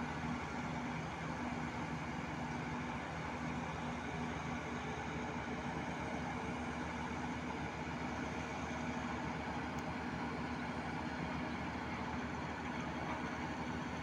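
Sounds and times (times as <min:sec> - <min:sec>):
crane diesel engine running: 0:00.1 - 0:14.0.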